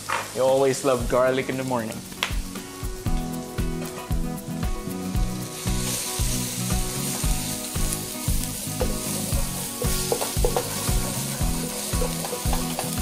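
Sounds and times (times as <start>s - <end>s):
aromatics sizzling in oil: 0.0s - 13.0s
spatula scraping and tapping pan: 9.8s - 11.0s, 11.9s - 13.0s.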